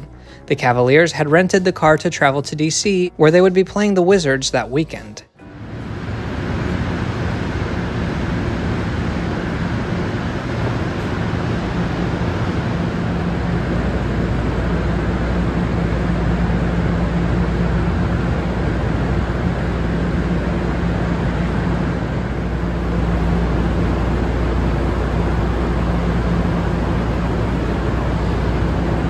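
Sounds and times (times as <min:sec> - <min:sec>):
low rumble with faint hum: 0:00.0 - 0:29.0.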